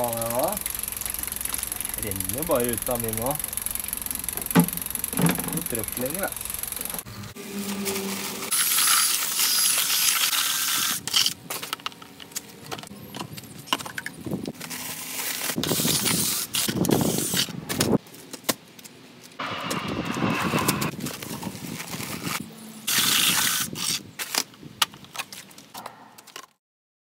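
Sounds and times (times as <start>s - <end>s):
drill mixer whirring in mortar: 0.0s - 7.1s.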